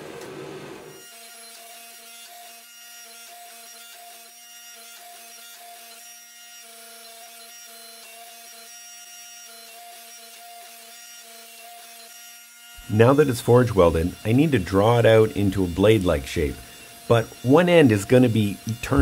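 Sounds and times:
hydraulic press pump whine: 12.8s - 19.0s.

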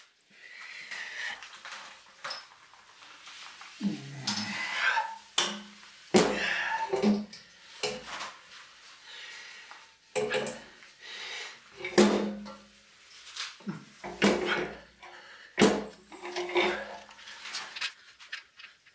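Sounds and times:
metal knocks and clanks: 11.8s - 12.6s.

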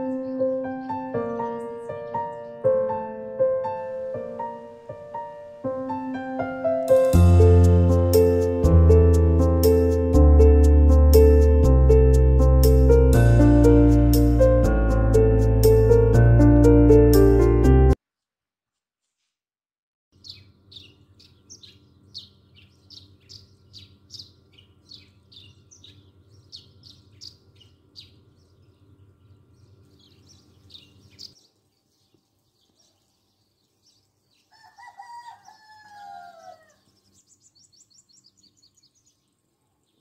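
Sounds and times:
small bird chirping: 0.0s - 2.9s, 20.2s - 40.0s
rooster crowing: 34.5s - 36.9s.

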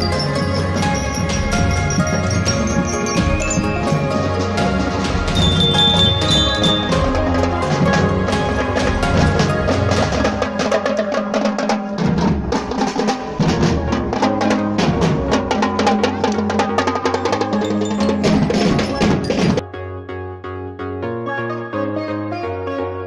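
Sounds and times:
bell lyres ringing: 0.0s - 4.7s, 5.3s - 7.2s, 16.7s - 19.6s
marching snare and bass drums: 1.0s - 19.6s.

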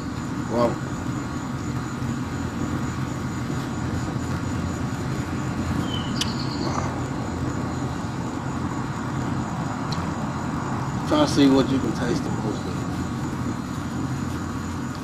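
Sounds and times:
low outdoor rumble: 0.0s - 15.0s
sharp click: 6.2s - 6.8s.

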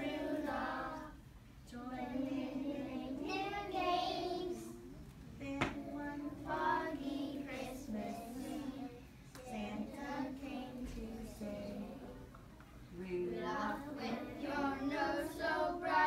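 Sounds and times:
children singing in unison: 0.0s - 1.2s, 13.6s - 16.0s.

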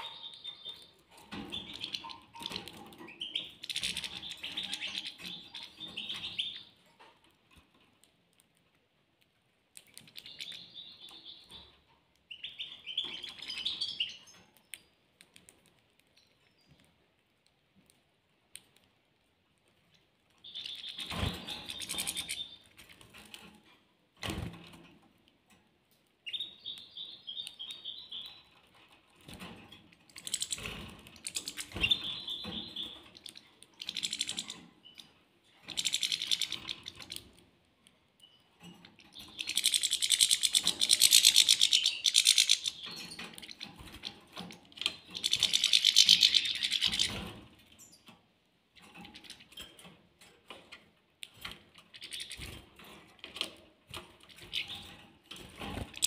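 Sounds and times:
finches chirping and twittering: 0.0s - 7.8s, 9.8s - 16.9s, 19.9s - 23.4s, 26.2s - 37.4s, 38.2s - 48.1s, 48.7s - 56.0s.

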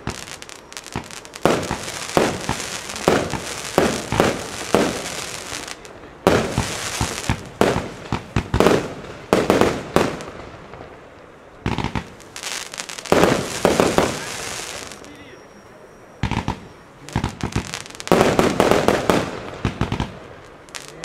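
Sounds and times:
firework launch bangs and bursts: 0.0s - 11.0s, 11.6s - 15.1s, 16.2s - 21.0s.

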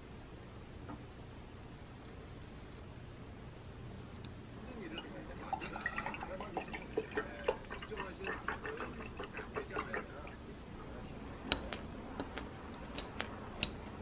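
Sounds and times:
milk pouring into a glass: 4.7s - 10.6s.

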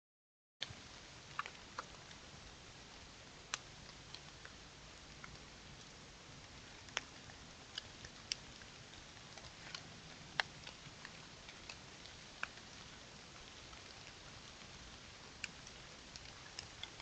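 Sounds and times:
microphone hiss: 0.6s - 17.0s
water drops on dry leaves: 6.8s - 17.0s.

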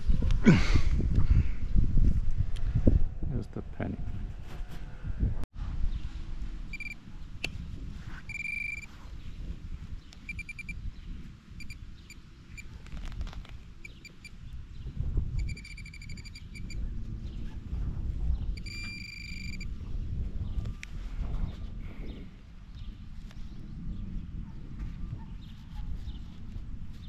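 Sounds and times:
metal detector beeping: 6.7s - 7.0s, 8.3s - 8.9s, 10.2s - 10.8s, 11.6s - 12.7s, 13.8s - 14.4s, 15.4s - 16.8s, 18.6s - 19.7s.

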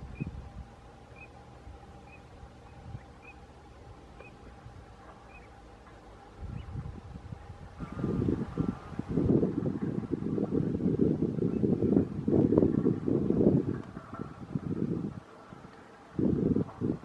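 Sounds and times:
low wind rumble: 0.0s - 17.0s
wind buffeting microphone: 0.0s - 17.0s
duck whistled calls: 1.1s - 1.4s, 2.0s - 3.4s, 4.2s - 4.5s, 5.2s - 5.5s.

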